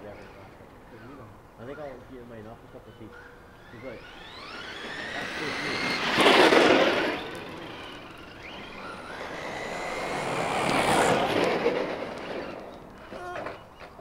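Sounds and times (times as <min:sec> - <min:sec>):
electric motor whine: 0:03.5 - 0:13.6.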